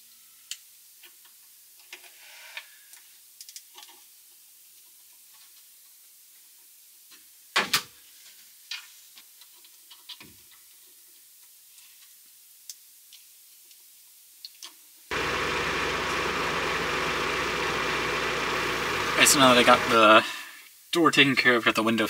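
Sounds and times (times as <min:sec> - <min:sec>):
car engine idling: 0:15.1 - 0:20.2.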